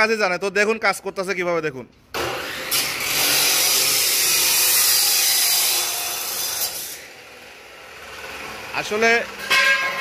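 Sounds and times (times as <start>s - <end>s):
chop saw grinding through steel: 2.2s - 8.6s.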